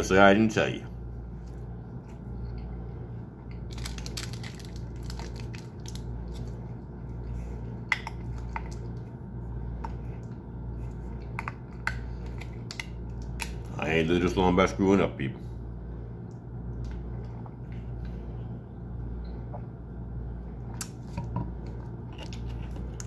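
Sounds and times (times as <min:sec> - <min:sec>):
plastic bottle crackling: 0:03.7 - 0:06.5.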